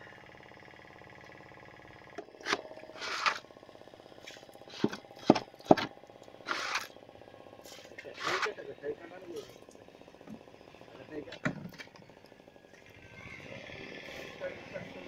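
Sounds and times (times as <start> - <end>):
short scraping noises: 2.4 - 3.4, 6.5 - 6.9, 7.6 - 8.6.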